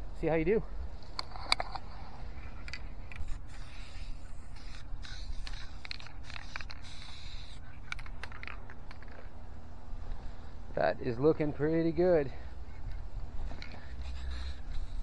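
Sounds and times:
clicks and handling noise: 1.0s - 3.4s, 7.8s - 9.4s
aerosol spray can hissing: 3.2s - 7.6s, 14.0s - 15.0s.

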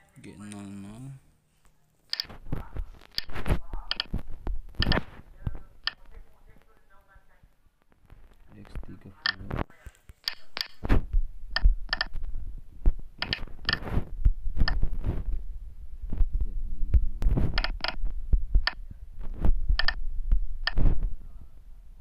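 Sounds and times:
dull low handling thumps: 14.0s - 21.2s.

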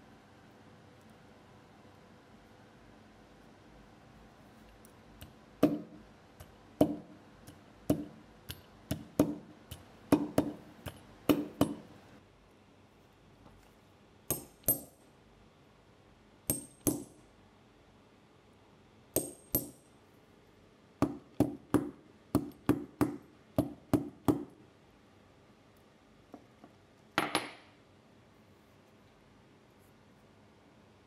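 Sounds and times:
hammer tapping metal setter: 5.2s - 11.9s, 14.3s - 15.0s, 16.5s - 17.1s.

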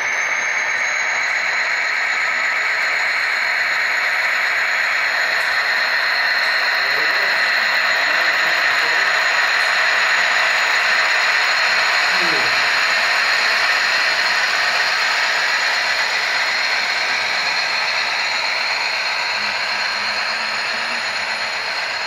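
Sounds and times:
model train rolling on track: 0.0s - 22.0s.

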